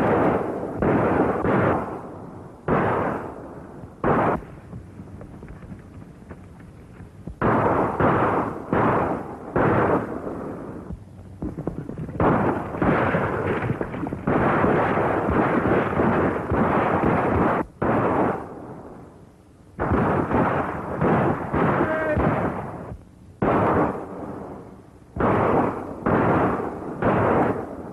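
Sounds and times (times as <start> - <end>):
gunshots: 0.0 - 4.7, 7.4 - 18.7, 19.8 - 24.6, 25.2 - 27.9.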